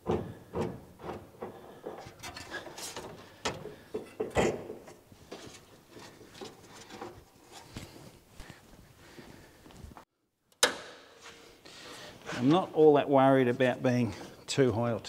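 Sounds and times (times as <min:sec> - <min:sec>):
sheet steel panels clunking: 0:00.0 - 0:07.3.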